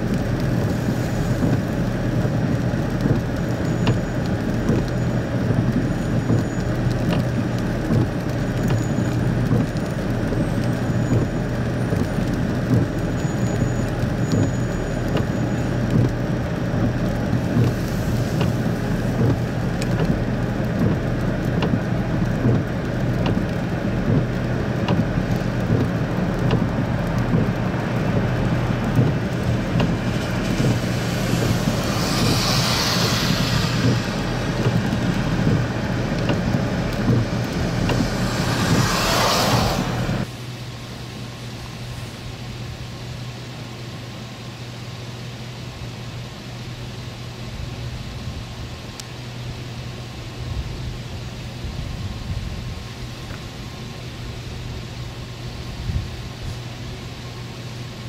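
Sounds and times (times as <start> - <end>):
truck engines running: 0.0 - 40.3
rain falling: 0.0 - 58.0.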